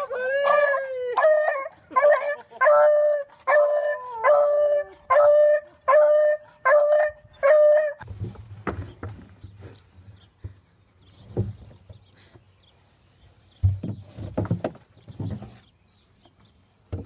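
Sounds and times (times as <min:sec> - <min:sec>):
dog howling and crying: 0:00.0 - 0:08.0.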